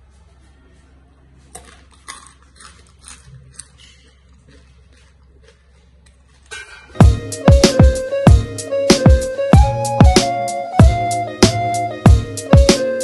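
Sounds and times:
crunching of fried snacks: 1.4 - 7.0.

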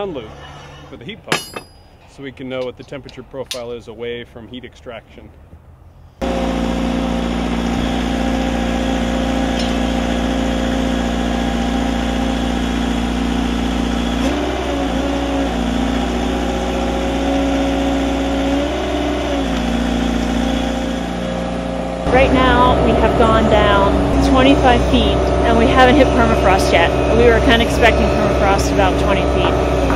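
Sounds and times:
drill rig engine running: 6.2 - 29.9.

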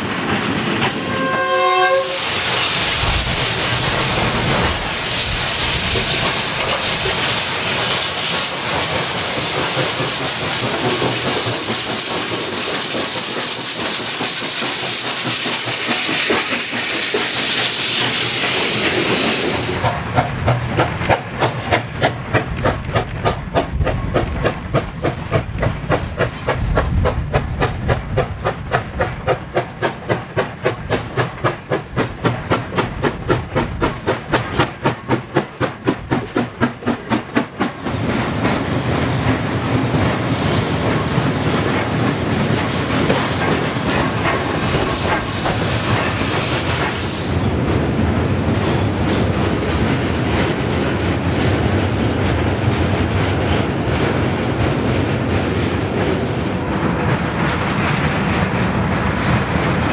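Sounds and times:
train rolling rumble: 0.0 - 59.9
steam hissing: 0.3 - 20.2, 39.1 - 47.6
steam locomotive exhaust chuffs: 0.3 - 59.9.

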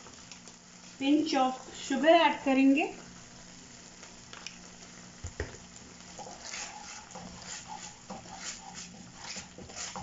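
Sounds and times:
spatula scraping frying pan: 6.0 - 10.0.

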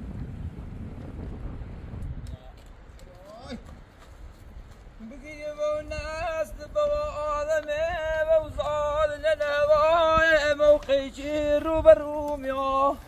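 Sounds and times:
man singing in a high voice: 5.0 - 13.0.

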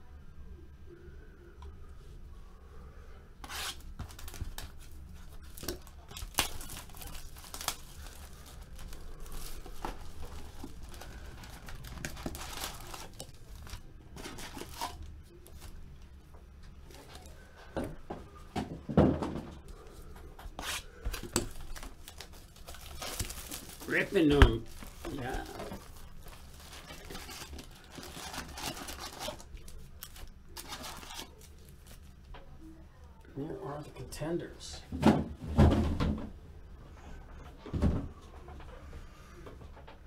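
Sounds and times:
plastic wrapping tearing and crinkling: 3.4 - 15.8, 20.6 - 32.2.

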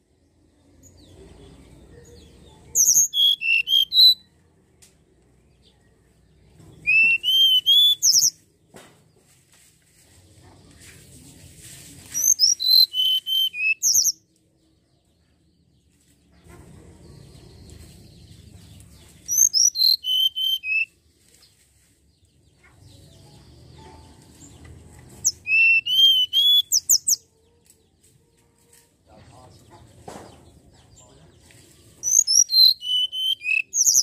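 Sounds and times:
bird whistling song: 2.8 - 4.3, 6.8 - 8.4, 12.2 - 14.2, 19.3 - 20.9, 25.2 - 27.2, 32.0 - 34.0.

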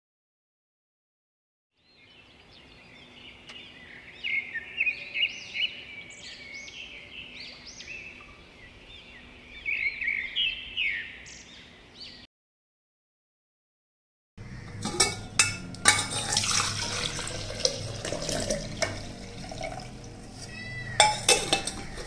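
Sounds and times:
birds chirping: 1.8 - 12.3, 14.4 - 16.1, 16.9 - 22.0.

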